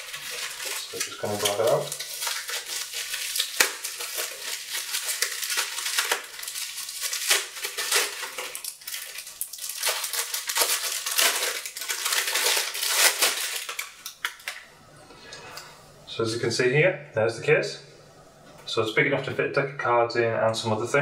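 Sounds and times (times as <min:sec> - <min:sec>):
bubble wrap crackling: 0:00.0 - 0:14.7.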